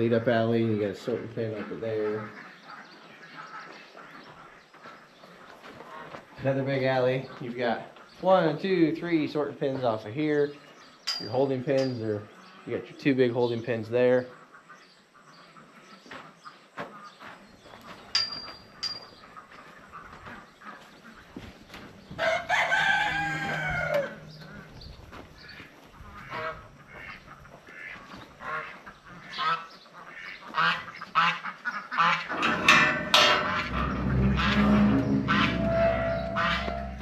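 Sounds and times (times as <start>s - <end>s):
farm bird call: 0.0s - 37.0s
footsteps: 3.6s - 6.5s, 16.0s - 29.0s, 32.2s - 37.0s
steel gate rumbling and clanking: 32.2s - 37.0s.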